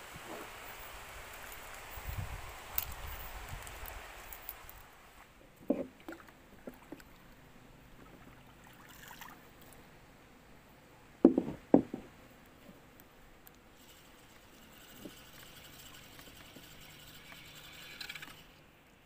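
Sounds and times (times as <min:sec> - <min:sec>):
paddle knocking on boat hull: 0:11.2 - 0:12.1.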